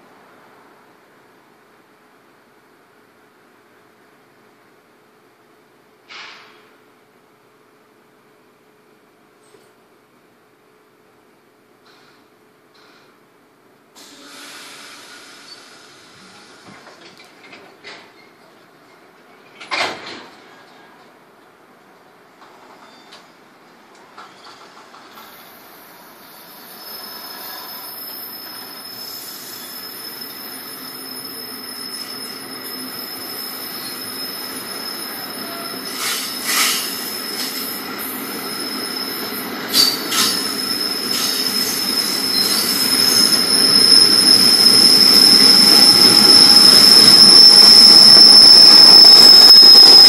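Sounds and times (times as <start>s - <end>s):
train rolling past: 14.0s - 50.0s
high wheel squeal: 26.2s - 50.0s.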